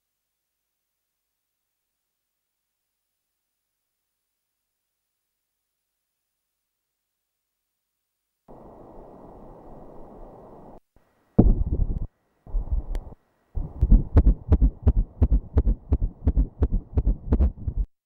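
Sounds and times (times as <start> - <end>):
doppler heartbeat whooshing pulses: 11.4 - 17.9.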